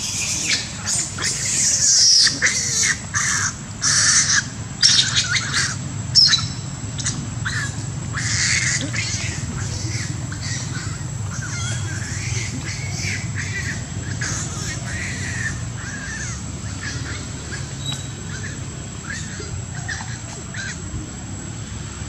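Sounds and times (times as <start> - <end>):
harsh animal calls: 0.0 - 22.0
steady low hum: 0.0 - 22.0.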